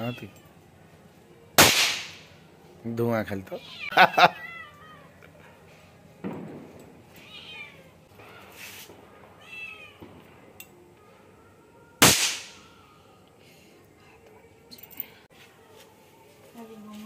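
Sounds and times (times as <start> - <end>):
loud sharp bang: 1.6 - 2.2, 12.0 - 12.6
cat meowing: 3.5 - 5.2, 7.2 - 7.9, 9.4 - 10.1.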